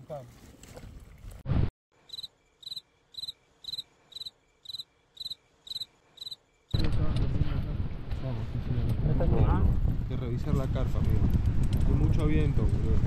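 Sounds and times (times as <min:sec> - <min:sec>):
cricket chirping: 0:02.0 - 0:06.8
wind buffeting microphone: 0:06.8 - 0:13.0.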